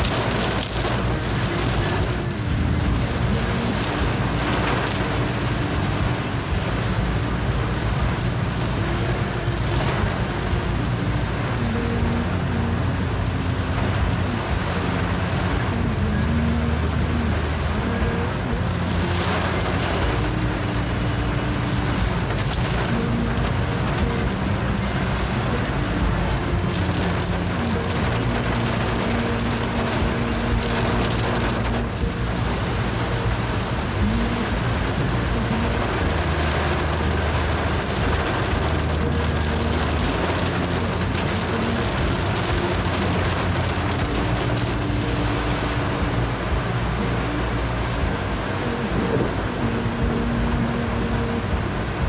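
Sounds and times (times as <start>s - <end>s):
background music: 0.0s - 52.0s
heavy rain on car roof: 0.0s - 52.0s.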